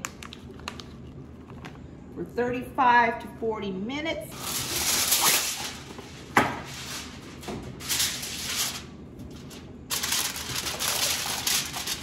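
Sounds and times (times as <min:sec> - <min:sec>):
aluminum foil crinkling: 0:04.3 - 0:12.0.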